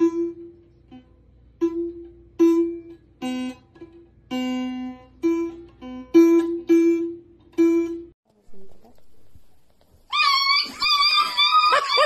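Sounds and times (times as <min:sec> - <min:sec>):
acoustic guitar notes plucked: 0:00.0 - 0:08.2.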